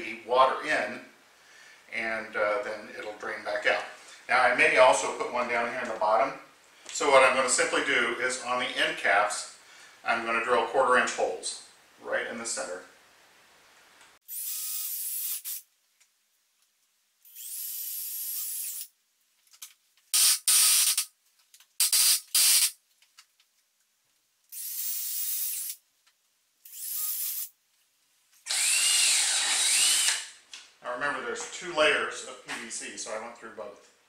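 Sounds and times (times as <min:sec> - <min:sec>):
cordless drill boring plastic: 0:14.3 - 0:15.6, 0:17.3 - 0:18.9, 0:20.2 - 0:21.1, 0:21.8 - 0:22.8, 0:24.5 - 0:25.8, 0:26.6 - 0:27.5, 0:28.5 - 0:30.4.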